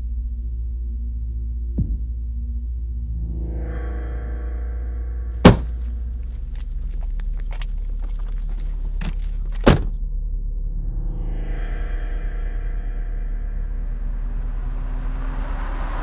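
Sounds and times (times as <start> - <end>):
low synthesizer drone: 0.0 - 9.0, 9.9 - 16.0
car door slams: 5.4 - 5.9, 9.5 - 10.0.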